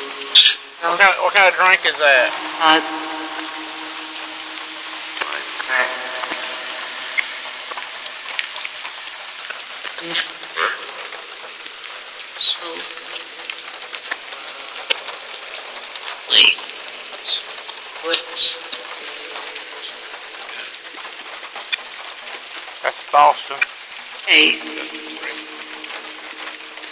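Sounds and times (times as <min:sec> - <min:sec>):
garbled voice fragments: 0:00.0 - 0:08.2, 0:09.9 - 0:11.1, 0:12.4 - 0:13.3, 0:16.2 - 0:21.1, 0:22.8 - 0:26.9
steady hiss from speaker: 0:00.0 - 0:26.9.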